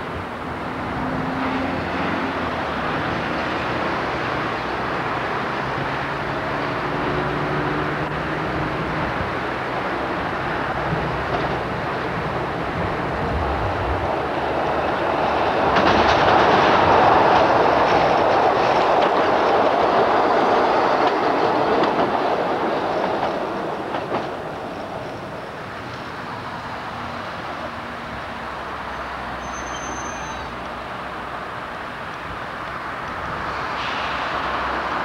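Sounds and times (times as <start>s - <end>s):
tram wheels rumbling on rail: 0.0s - 35.0s
clacks over rail joints: 1.2s - 28.5s.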